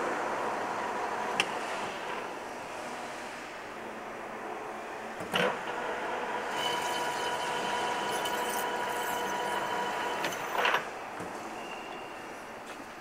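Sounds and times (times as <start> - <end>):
metal lathe whining: 5.7 - 11.0.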